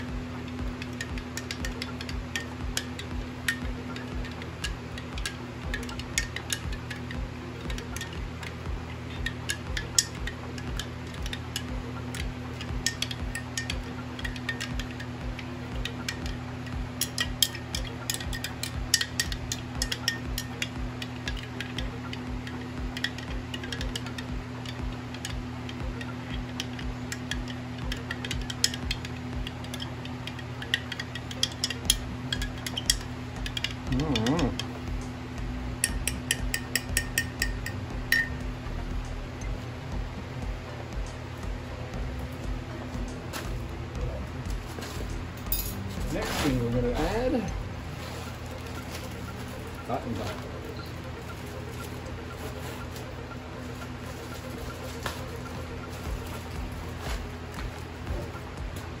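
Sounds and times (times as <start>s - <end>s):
metal spoon clinking in glass jar: 0.8s - 15.2s, 15.8s - 34.7s, 35.8s - 38.4s.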